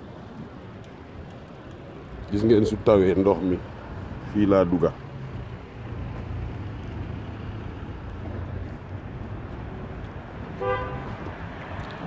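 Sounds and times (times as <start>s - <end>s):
city traffic rumble: 0.0s - 12.0s.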